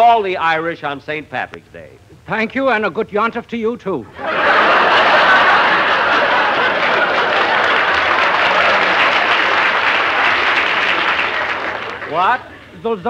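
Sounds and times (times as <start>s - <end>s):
audience applauding: 4.3s - 12.4s.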